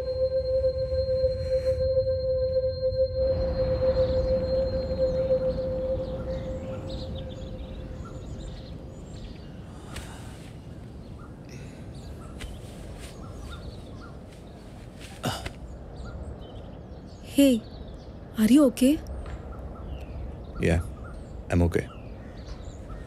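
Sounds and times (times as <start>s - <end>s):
loud sound with falling pitch: 0.0s - 8.4s
held music tone: 0.0s - 8.5s
steady low noise: 0.0s - 11.1s
birds calling: 4.0s - 18.6s, 19.2s - 23.0s.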